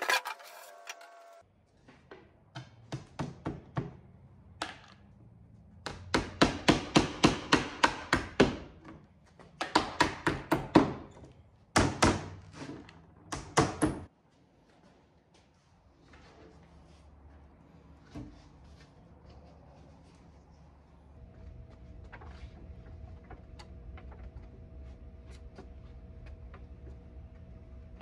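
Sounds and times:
hammer striking nails into wood: 0:05.8 - 0:08.6, 0:09.6 - 0:11.0, 0:11.8 - 0:12.4, 0:13.3 - 0:14.1.

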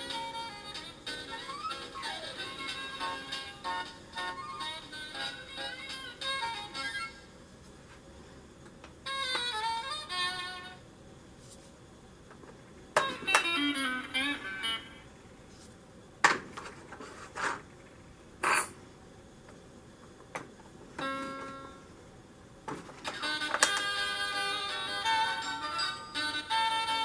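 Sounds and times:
electronic toy music: 0:00.0 - 0:07.2.

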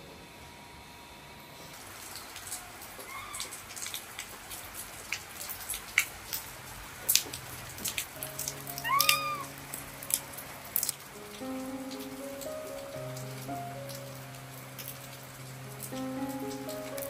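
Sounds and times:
rain drips tapping: 0:01.8 - 0:17.0
baby monkey cooing: 0:08.8 - 0:09.5.

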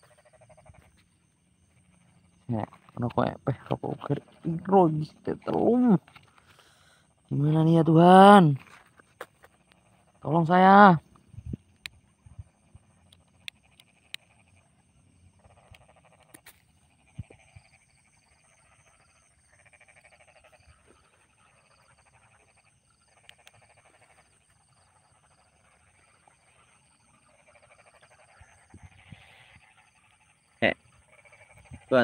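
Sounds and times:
frogs croaking: 0:00.0 - 0:32.0
high cricket trill: 0:00.0 - 0:32.0.

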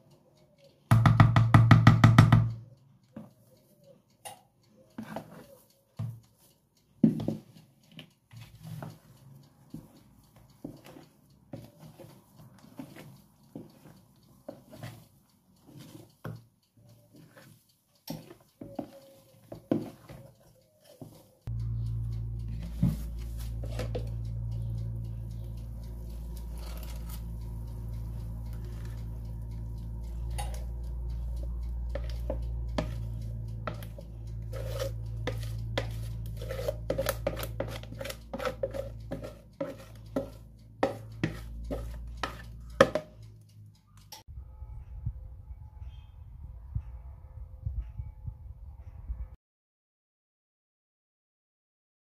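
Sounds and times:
clicks and taps: 0:00.6 - 0:44.3
spatula knocking against bowl: 0:00.9 - 0:02.6, 0:18.1 - 0:20.2, 0:31.4 - 0:43.2
spatula scraping plastic bowl: 0:05.0 - 0:05.6, 0:10.6 - 0:15.0, 0:22.5 - 0:24.2, 0:31.9 - 0:43.2
steady low hum: 0:21.5 - 0:43.4.

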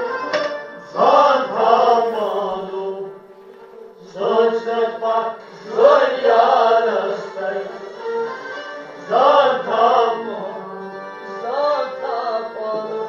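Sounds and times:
person singing: 0:00.9 - 0:08.0, 0:09.0 - 0:13.0
instrumental drone: 0:01.6 - 0:04.0.

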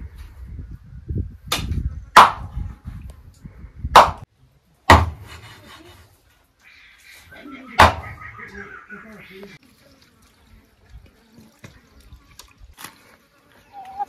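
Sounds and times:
sharp chopping blows: 0:01.5 - 0:02.7, 0:03.9 - 0:04.3, 0:04.9 - 0:05.5, 0:07.8 - 0:08.1.

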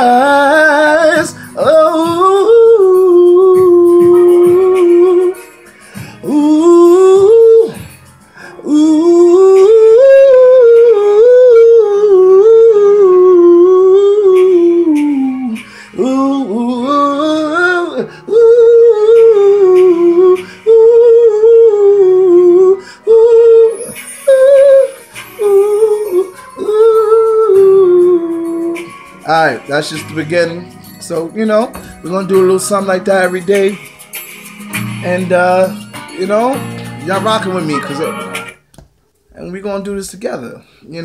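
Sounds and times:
man singing in a high voice: 0:00.0 - 0:05.5, 0:06.2 - 0:07.8, 0:08.6 - 0:33.8.

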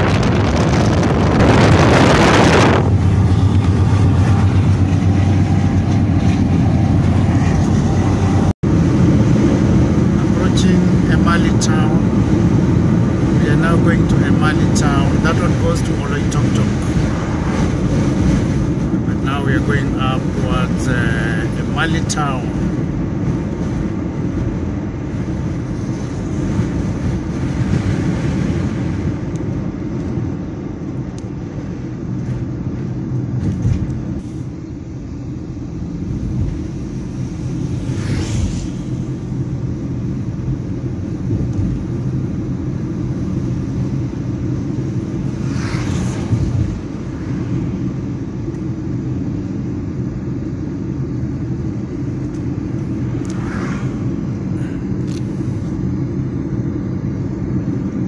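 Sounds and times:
passing vehicle whoosh: 0:00.0 - 0:21.0, 0:35.5 - 0:49.0, 0:52.5 - 0:56.0
car engine and tyre drone: 0:00.0 - 0:58.0.

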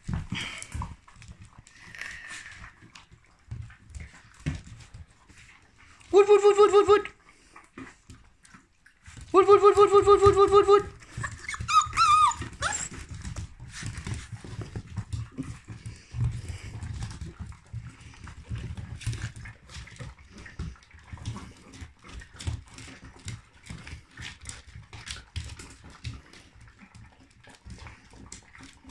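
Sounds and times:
paws on wooden floor: 0:00.0 - 0:06.2, 0:07.2 - 0:28.9
puppies crunching dry kibble: 0:00.0 - 0:28.9
puppy whine: 0:09.4 - 0:13.3.

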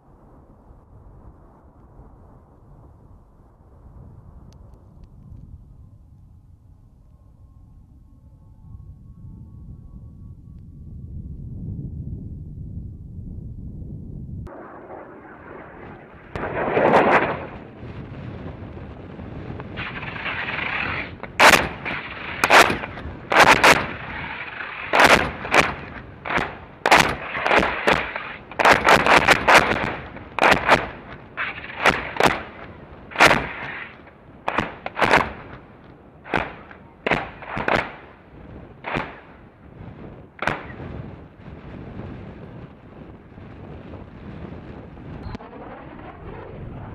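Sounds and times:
sharp explosive cracks: 0:14.5 - 0:18.4, 0:19.4 - 0:38.2, 0:38.8 - 0:39.4, 0:40.4 - 0:41.0.

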